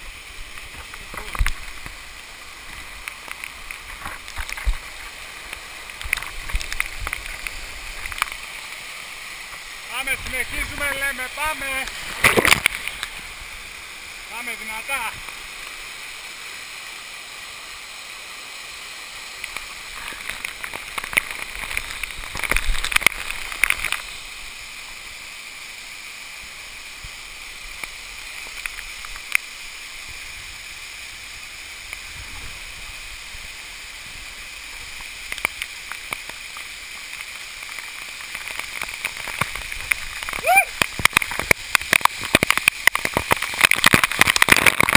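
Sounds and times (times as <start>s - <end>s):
water splashing on camera: 0.0s - 16.2s, 31.9s - 44.9s
waterfall rushing: 0.0s - 44.9s.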